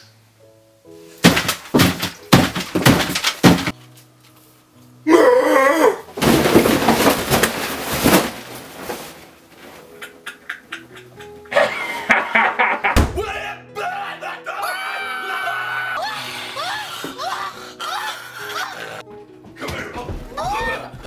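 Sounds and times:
loud thumps: 1.2 - 3.7, 13.0 - 13.3
table of plates crashing over: 1.2 - 3.7, 6.2 - 8.6.

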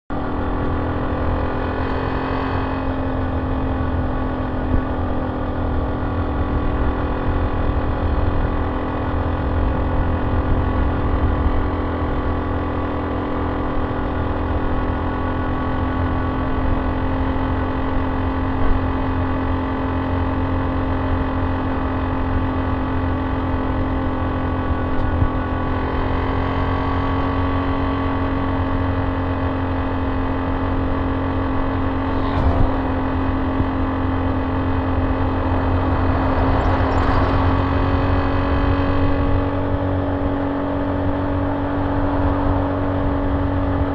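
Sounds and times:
motorcycle engine cruising: 0.1 - 43.9
wind rushing: 31.9 - 39.3.

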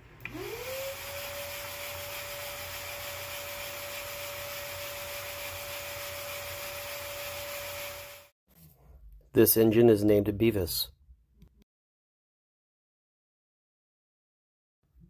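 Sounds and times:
shop vacuum motor whine: 0.0 - 8.3.

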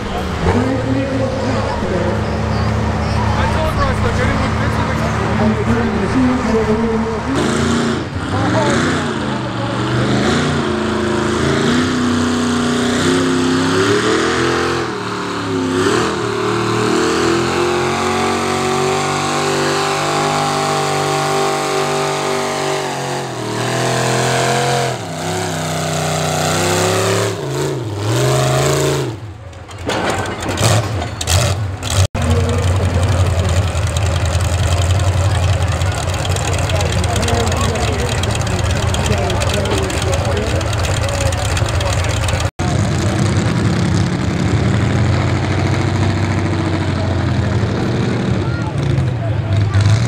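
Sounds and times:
tractor engine idling: 0.0 - 8.7, 29.3 - 45.3
tractor engine revving under load: 0.0 - 50.0.

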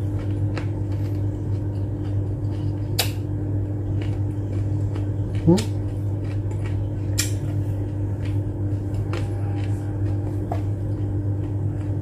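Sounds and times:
low hum: 0.0 - 12.0
chewing clicks: 0.1 - 7.6.

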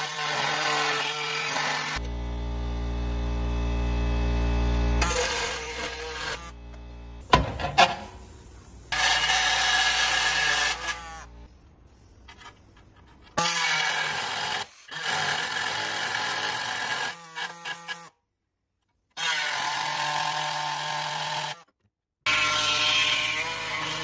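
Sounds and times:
air saw cutting steel: 5.0 - 6.6, 7.3 - 11.4.

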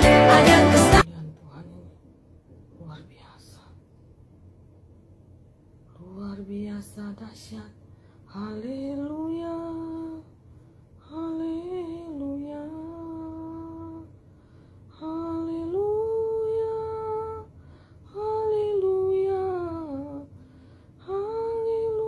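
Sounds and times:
woman humming: 11.1 - 14.1.

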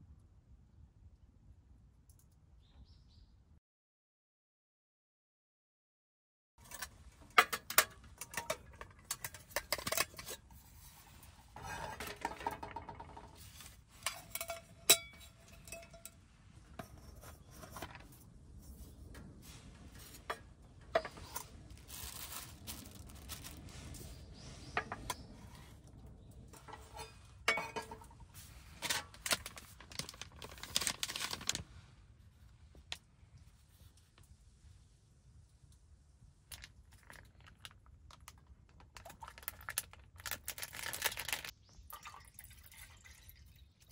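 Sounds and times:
metal cookware clinking and knocking: 6.6 - 10.4, 11.6 - 13.2, 14.0 - 16.2, 26.6 - 28.2.

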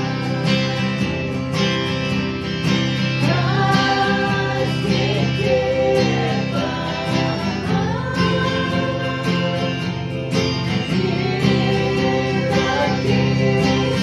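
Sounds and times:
acoustic guitars strumming: 0.0 - 14.0
person singing long notes: 3.2 - 10.1, 10.8 - 14.0.

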